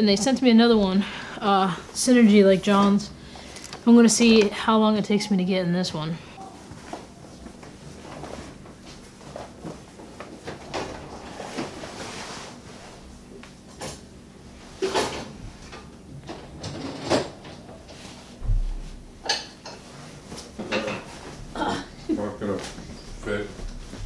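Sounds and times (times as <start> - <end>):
wetsuit rustling and rubbing: 6.6 - 10.2, 11.1 - 13.3, 22.4 - 24.0.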